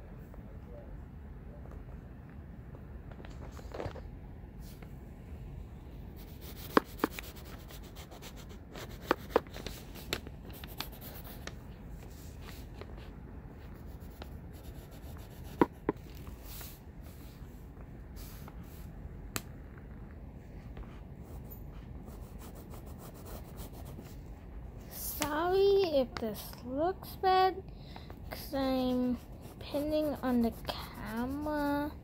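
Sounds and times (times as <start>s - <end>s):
pencil scratching on paper: 6.2s - 11.5s, 13.6s - 16.0s, 22.0s - 24.1s, 28.3s - 32.0s.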